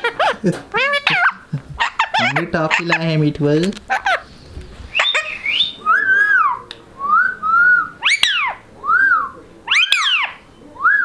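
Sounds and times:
parakeet whistling: 4.9 - 11.0.

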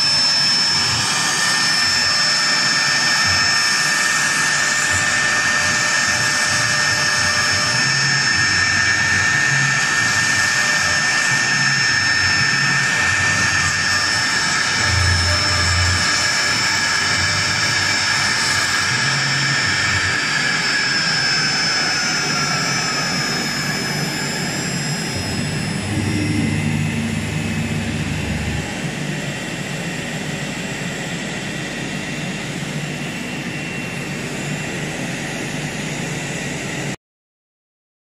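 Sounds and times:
engraving spindle whining: 0.0 - 29.7
steady machine noise: 0.0 - 37.0
low hum: 8.7 - 30.6.

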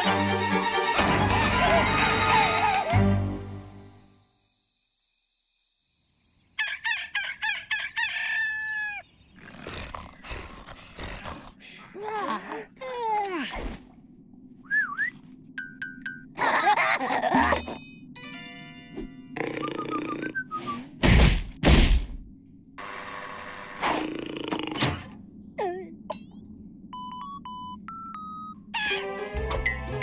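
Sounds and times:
rooster crowing: 6.6 - 9.0
yawn-like groans: 9.5 - 13.8.

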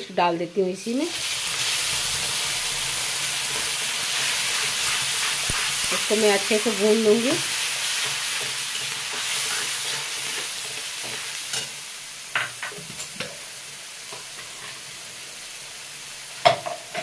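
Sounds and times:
paste sizzling in a metal pan: 0.6 - 17.0
metal spatula scraping a pan: 7.8 - 11.8
spatula clanking on pan: 16.4 - 17.0.

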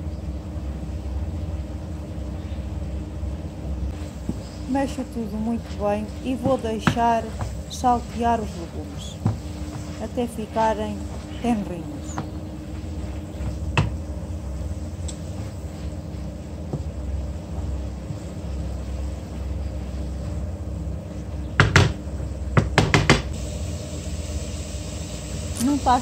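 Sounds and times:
steady low hum: 0.0 - 26.0
wooden spoon knocking on pan: 6.3 - 7.6, 13.4 - 14.0, 22.6 - 23.3.

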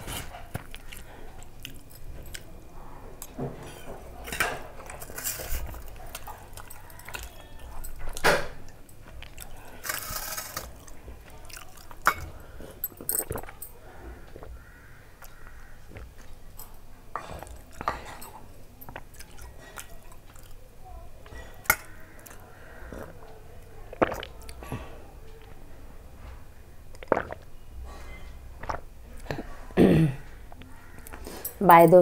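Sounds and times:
person chewing: 0.0 - 2.6, 4.8 - 14.6, 15.2 - 20.6, 23.9 - 25.6, 26.9 - 27.5.

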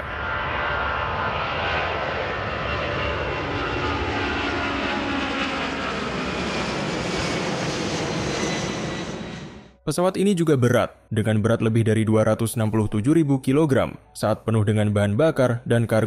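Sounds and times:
jet engine roar overhead: 0.0 - 9.8.

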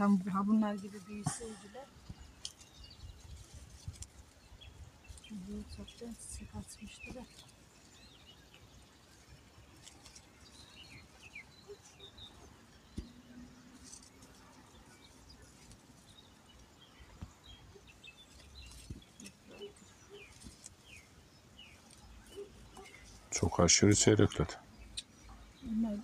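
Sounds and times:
bird chirps: 0.0 - 26.0
soft rustles and knocks: 18.2 - 23.4.

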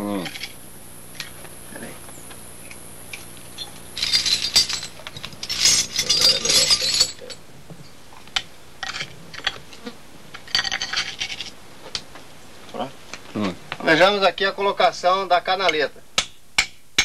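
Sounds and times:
metal climbing hardware clinking: 3.5 - 7.4.

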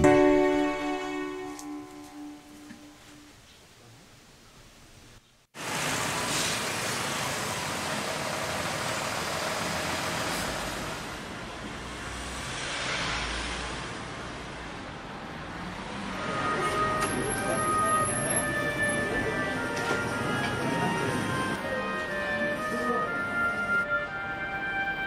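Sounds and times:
heavy vehicle rumble: 5.6 - 25.0
passing vehicles: 5.6 - 25.0.

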